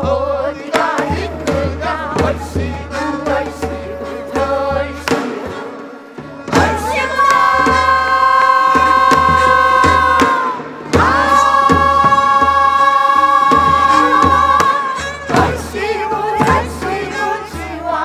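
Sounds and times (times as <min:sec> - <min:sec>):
drum strokes: 0:00.0 - 0:18.0
voices singing held note: 0:06.5 - 0:18.0.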